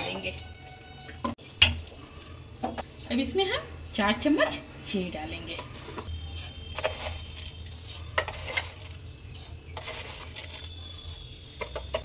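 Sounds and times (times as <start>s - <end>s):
spoon clinking against metal: 0.0s - 0.6s, 5.6s - 12.0s.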